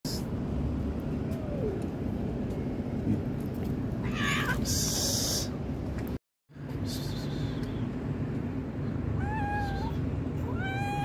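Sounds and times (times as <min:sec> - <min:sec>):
cat hissing: 0:04.0 - 0:05.6.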